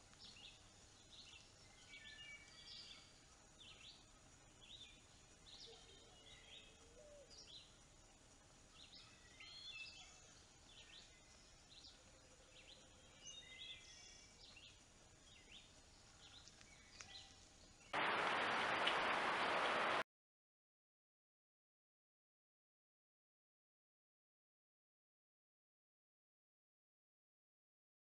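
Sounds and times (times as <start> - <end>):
loud steady hiss: 0.0 - 20.0
low background hiss: 0.0 - 20.0
songbirds chirping and whistling: 0.1 - 7.8, 8.6 - 18.0.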